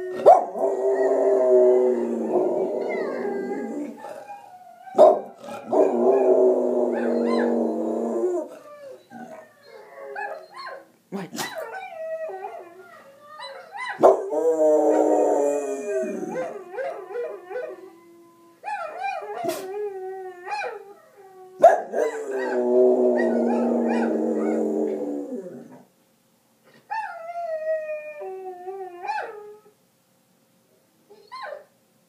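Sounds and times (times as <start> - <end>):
recorded wolf pack howling: 0.0 - 10.5, 11.7 - 25.9
dog howling: 0.0 - 10.8, 11.6 - 25.9.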